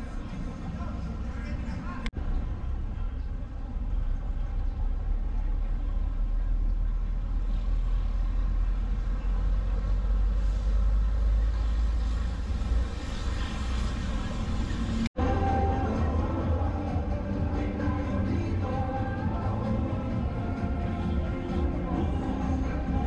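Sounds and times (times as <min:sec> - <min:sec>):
vehicle engine and road rumble: 0:00.0 - 0:23.0.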